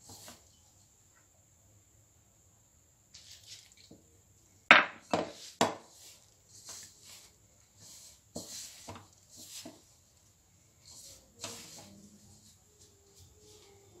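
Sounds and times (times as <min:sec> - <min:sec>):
hand squishing dough: 0:05.0 - 0:13.7.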